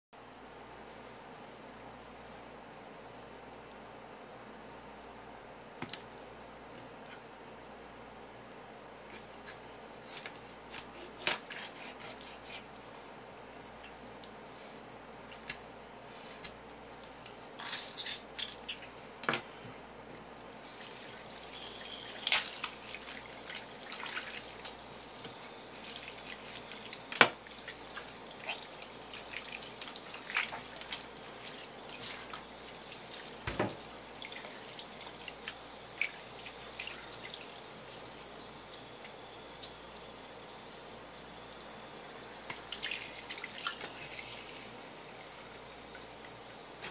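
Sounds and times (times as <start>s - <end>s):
faucet water running: 20.6s - 46.8s
water dripping: 20.8s - 46.7s.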